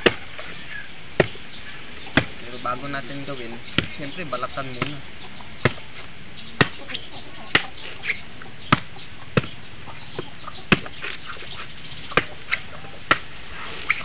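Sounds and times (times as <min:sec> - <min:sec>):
machete chopping coconut husk: 0:00.0 - 0:00.5, 0:01.1 - 0:01.4, 0:02.1 - 0:02.5, 0:03.7 - 0:04.1, 0:04.7 - 0:05.0, 0:05.6 - 0:09.6, 0:10.2 - 0:14.0.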